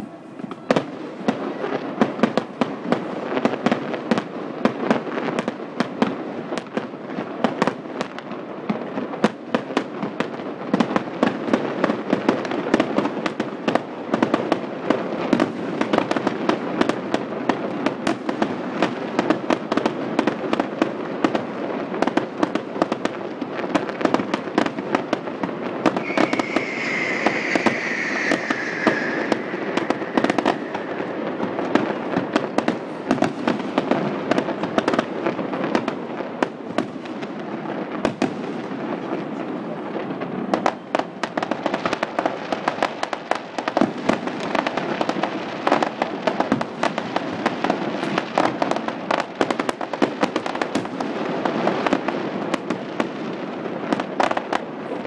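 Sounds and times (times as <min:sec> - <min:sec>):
fireworks bangs and crackling: 0:00.0 - 0:55.0
falling firework whistle: 0:25.7 - 0:33.8.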